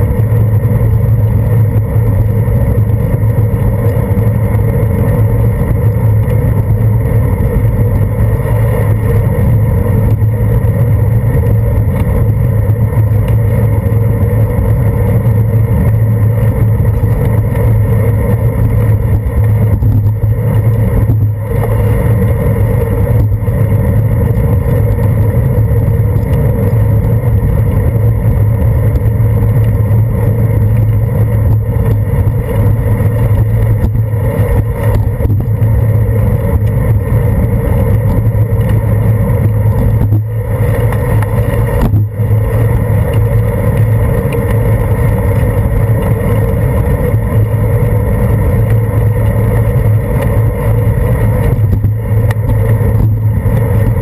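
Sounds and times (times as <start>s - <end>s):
tyre and road rumble: 0.0s - 54.0s
wind: 0.0s - 54.0s.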